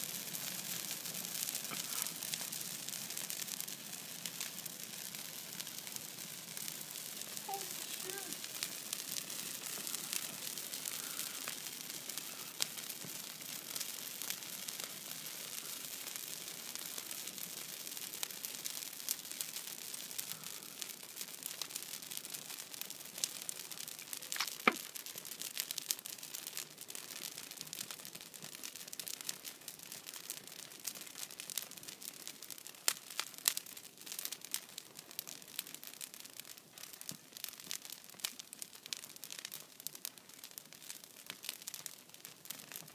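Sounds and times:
hiss of flames: 0.0s - 22.4s, 24.2s - 25.0s
fire crackles and pops: 0.0s - 42.9s.

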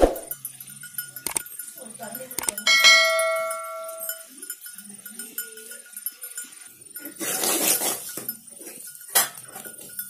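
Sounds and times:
faint sizzle: 3.8s - 10.0s
metal spatula scraping a pan: 5.6s - 10.0s.

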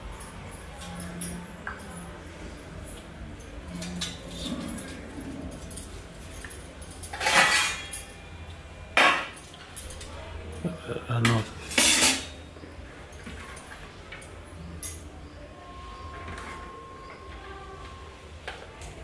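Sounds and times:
utensils and dishes clattering: 2.9s - 12.4s, 13.0s - 15.2s
steady low hum: 14.0s - 19.0s.

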